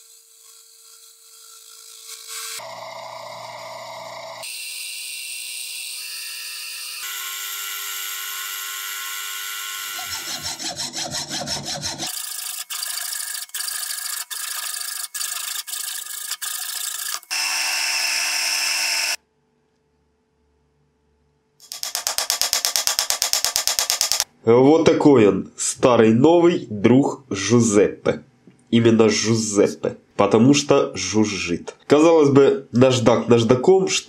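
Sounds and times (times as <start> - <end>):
metal lathe cutting: 0.1 - 19.2
drilling into spinning metal: 7.0 - 19.2
machine tone: 16.6 - 19.2
sharp ticks: 21.6 - 24.3.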